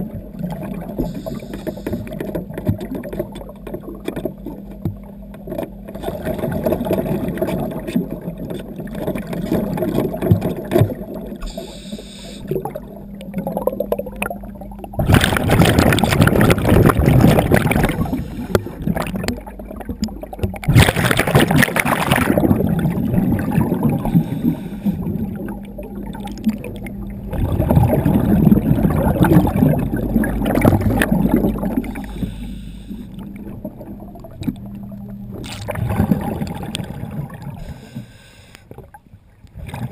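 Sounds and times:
steady low hum: 0:00.0 - 0:39.5
scuba exhaled bubbles gurgling: 0:00.0 - 0:39.9.

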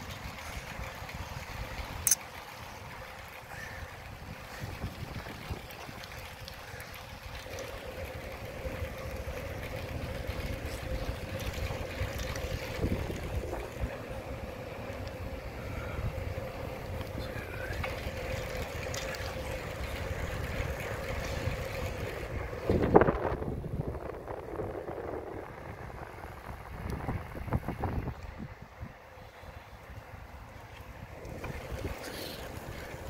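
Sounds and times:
faint steady hum: 0:00.0 - 0:33.0
rumble of riding on paved path: 0:00.0 - 0:33.0
wind rushing over microphone: 0:09.7 - 0:18.2, 0:20.0 - 0:29.2.

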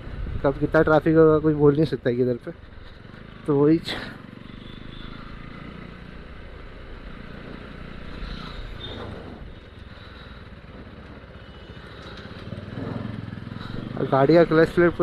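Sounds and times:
motorcycle engine running: 0:02.5 - 0:15.0.

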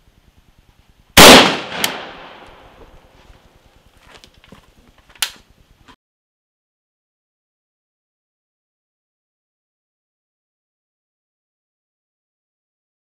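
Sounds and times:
loud rifle shot: 0:01.2 - 0:02.8
sharp crack: 0:01.2 - 0:03.0.

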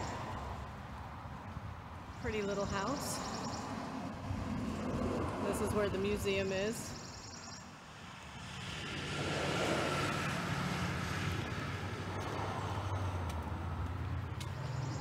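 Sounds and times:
road noise: 0:00.0 - 0:15.0.

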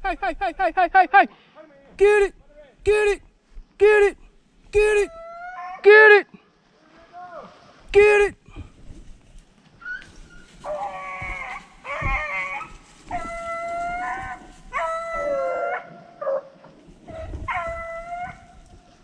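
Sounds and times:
hounds baying: 0:09.8 - 0:19.0.

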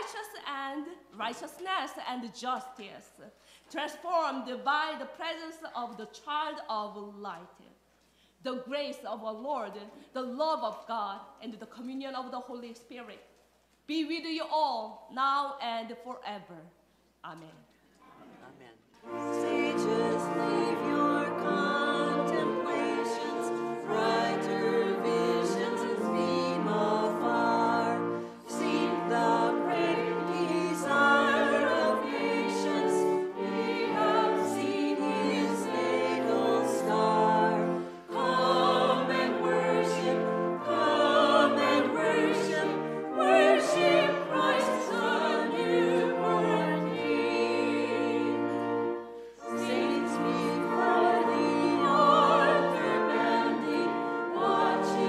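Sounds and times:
choir with orchestra: 0:19.0 - 0:55.0.

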